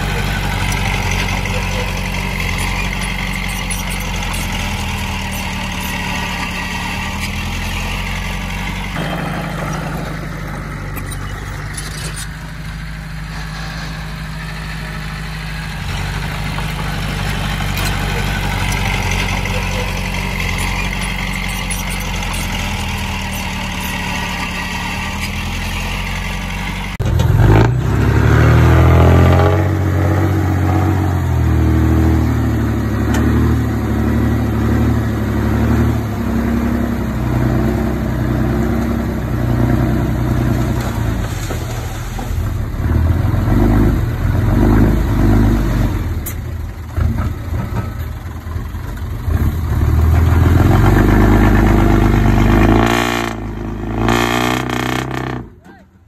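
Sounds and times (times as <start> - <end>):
bulldozer diesel engine revving: 0.0 - 56.0.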